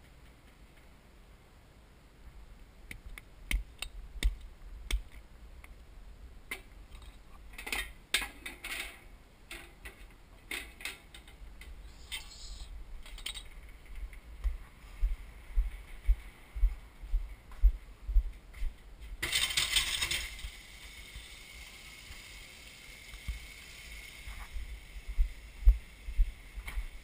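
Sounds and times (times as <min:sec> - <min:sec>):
metal parts clicking and knocking: 0:13.0 - 0:13.6.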